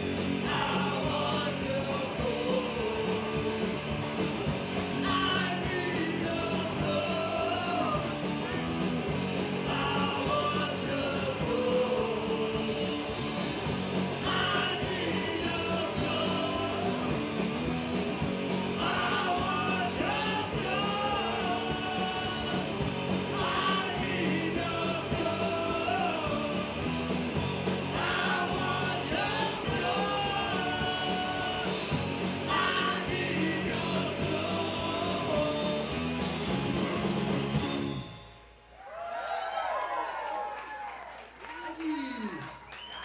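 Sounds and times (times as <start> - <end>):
punk rock band playing: 0.0 - 38.6
person singing and shouting: 14.2 - 17.2, 18.7 - 26.9, 27.9 - 36.0.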